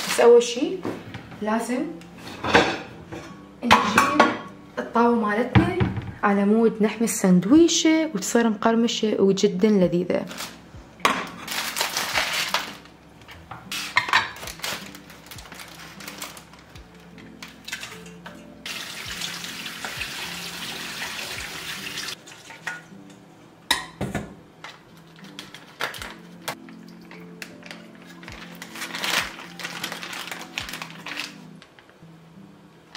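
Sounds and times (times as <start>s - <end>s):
water spraying into a colander: 18.6s - 22.6s
kitchen tap running: 18.6s - 22.8s.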